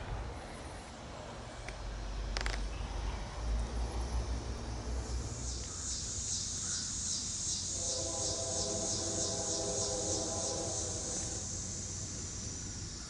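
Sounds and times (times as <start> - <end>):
insects chirping: 1.8 - 13.0.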